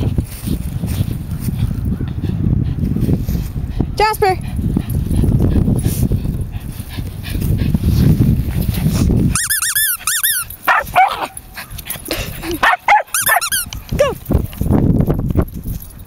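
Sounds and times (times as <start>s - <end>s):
dog yelping: 9.4s - 11.6s, 12.6s - 14.2s.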